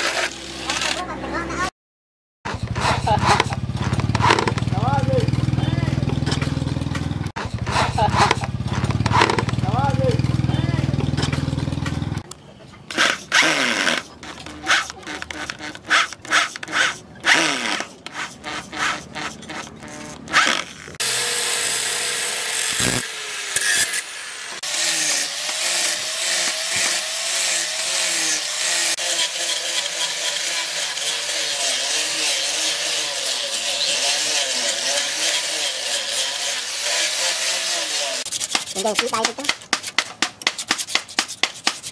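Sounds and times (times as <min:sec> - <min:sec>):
knocks and scrapes: 0:02.5 - 0:21.0, 0:38.2 - 0:41.9
angle grinder sanding wood: 0:02.6 - 0:12.2, 0:12.9 - 0:41.9.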